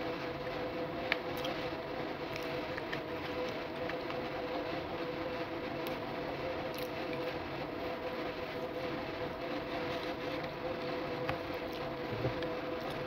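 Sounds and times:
mechanical hum with whining tones: 0.0 - 13.0
faint clicks of eating fries: 2.3 - 4.2.

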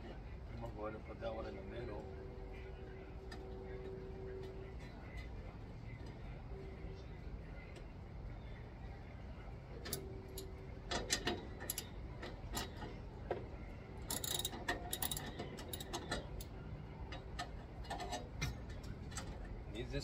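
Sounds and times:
hand tools clicking on metal: 14.1 - 16.5.

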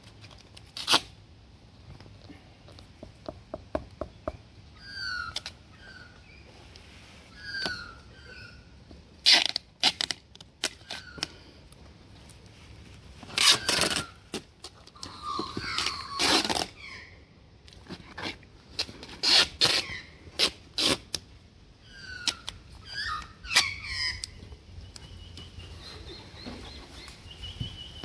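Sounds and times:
tape ripping off roll: 0.2 - 1.2, 9.2 - 11.0, 13.2 - 14.8, 15.8 - 16.8, 17.9 - 19.8, 20.4 - 21.2.

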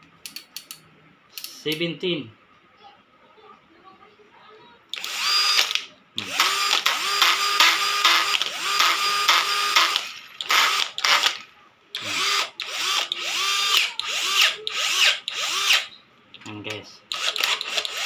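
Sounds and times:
cordless drill motor whining: 4.9 - 11.4, 12.0 - 15.9, 17.1 - 18.0.

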